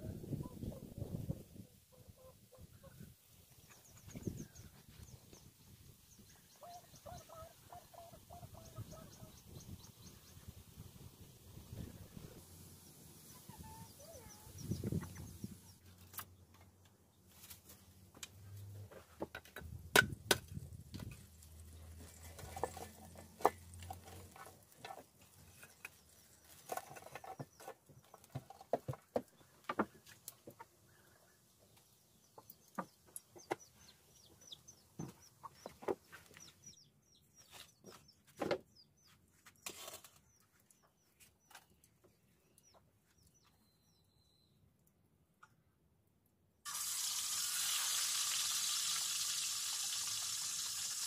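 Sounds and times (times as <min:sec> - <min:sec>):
small birds chirping: 0:00.3 - 0:16.6, 0:24.4 - 0:44.6
chickens clucking: 0:06.6 - 0:09.6, 0:13.3 - 0:15.7.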